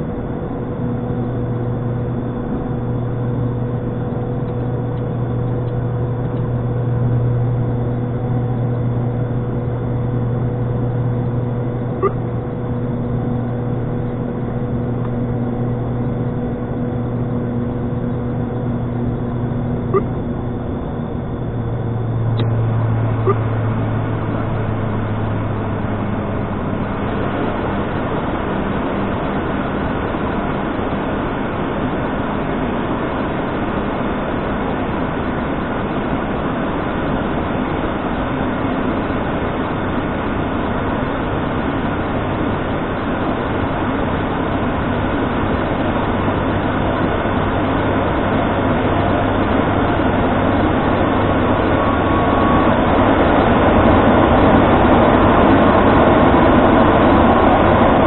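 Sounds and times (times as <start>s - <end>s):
engine and airflow rush: 0.0s - 58.0s
propeller drone: 0.0s - 58.0s.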